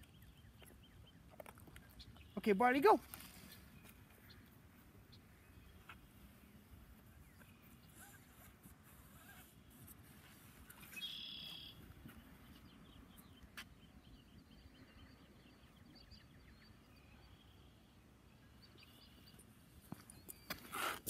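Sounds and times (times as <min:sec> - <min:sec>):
faint high chirps: 0:10.7 - 0:11.8.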